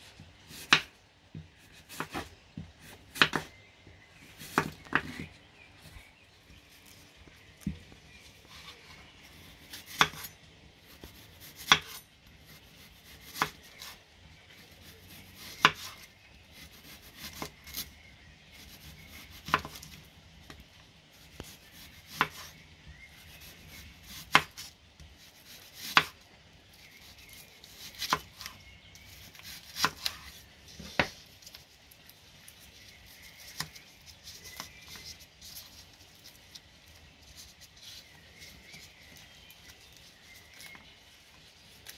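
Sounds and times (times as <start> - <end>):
knife slicing onion: 1.6 - 3.6, 26.8 - 31.5.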